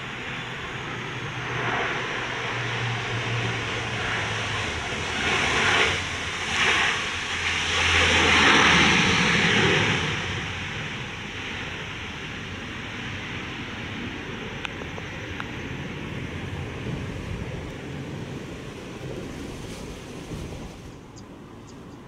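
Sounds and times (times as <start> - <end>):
turboprop propellers droning: 0.0 - 22.0.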